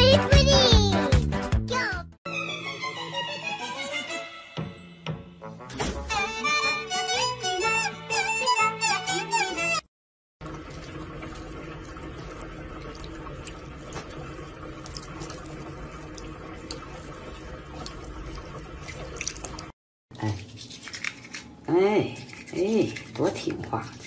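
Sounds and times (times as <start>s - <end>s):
tap water running into sink: 10.4s - 19.7s
water drips and splashes: 10.4s - 21.4s.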